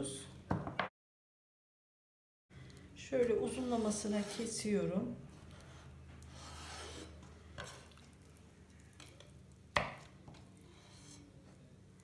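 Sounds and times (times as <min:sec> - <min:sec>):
knife scraping cutting board: 0:03.4 - 0:04.7, 0:05.4 - 0:08.0.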